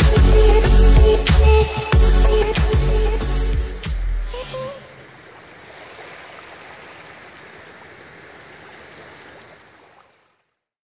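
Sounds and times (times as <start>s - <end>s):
background music: 0.0s - 4.8s
small waves lapping on rocky shore: 4.4s - 10.6s.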